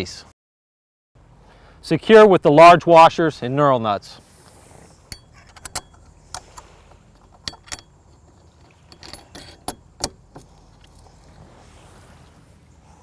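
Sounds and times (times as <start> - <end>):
small metal clicks and clinks: 5.1 - 6.4, 7.2 - 10.2.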